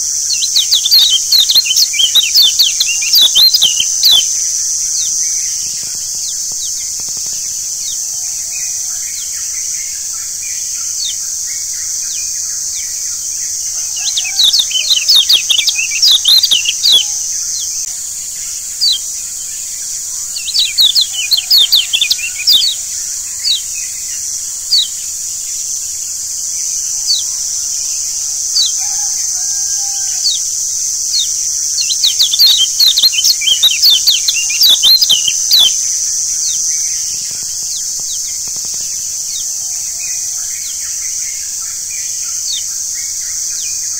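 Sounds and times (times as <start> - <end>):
bird chirping rapidly: 0.0 - 5.2, 13.4 - 17.9, 18.8 - 19.1, 20.4 - 23.7, 28.4 - 37.0
high insect-like hiss: 0.0 - 43.9.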